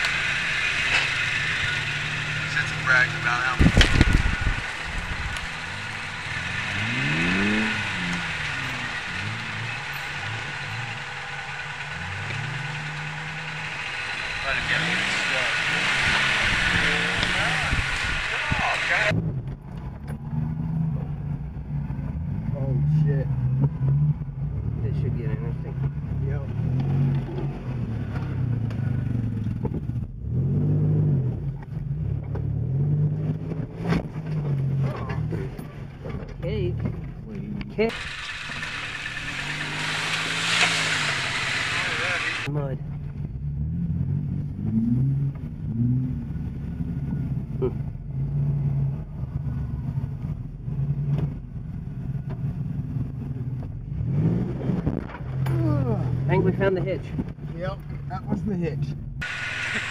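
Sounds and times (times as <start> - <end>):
engine revving from inside cabin: 0.0 - 19.5, 25.7 - 35.6, 37.9 - 42.5, 43.3 - 56.4, 59.2 - 59.9.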